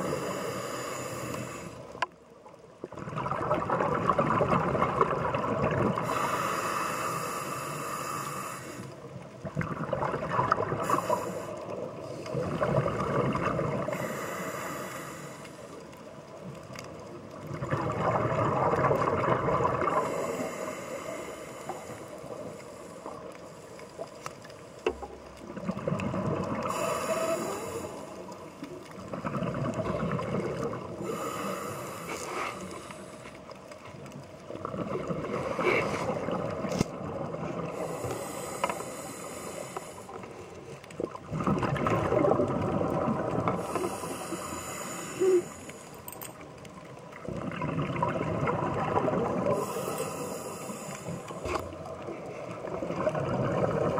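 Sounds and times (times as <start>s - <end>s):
regulator hiss on inhale: 0.0s - 2.1s, 6.0s - 9.2s, 10.8s - 12.6s, 13.8s - 16.0s, 19.8s - 25.1s, 26.6s - 28.8s, 30.9s - 33.7s, 35.3s - 36.4s, 37.7s - 40.8s, 43.5s - 46.2s, 49.4s - 52.7s
bubbles rushing underwater: 2.8s - 6.1s, 9.4s - 11.1s, 11.7s - 14.0s, 17.4s - 20.0s, 25.4s - 26.7s, 29.0s - 31.0s, 41.0s - 43.7s, 47.1s - 49.6s, 52.6s - 53.9s.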